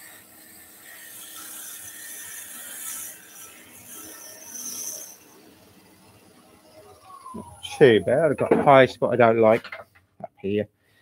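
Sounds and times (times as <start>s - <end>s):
lathe tool scraping wood: 0.0s - 6.2s.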